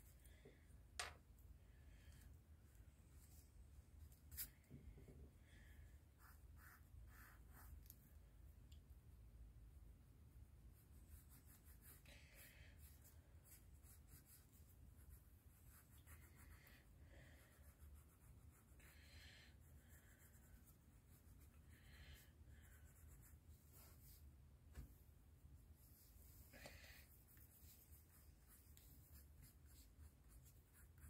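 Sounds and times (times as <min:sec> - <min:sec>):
pencil scratching on paper: 0:06.2 - 0:08.0, 0:10.7 - 0:18.9, 0:27.2 - 0:31.0.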